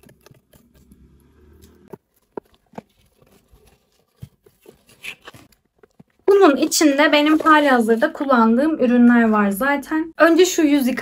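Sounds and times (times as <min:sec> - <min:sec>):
cardboard clicks and rustles: 0:01.9 - 0:07.8.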